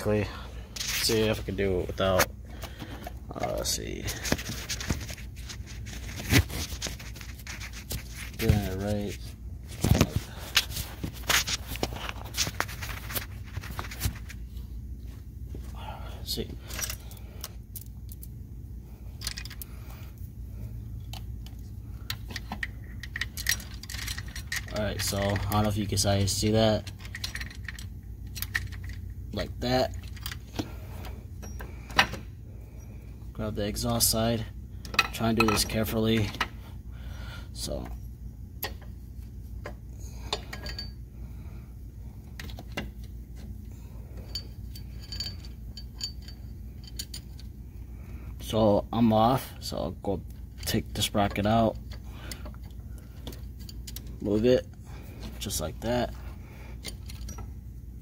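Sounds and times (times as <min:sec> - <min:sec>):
steady low hum: 0:00.0 - 0:58.0
metal chain links clinking: 0:44.2 - 0:47.4.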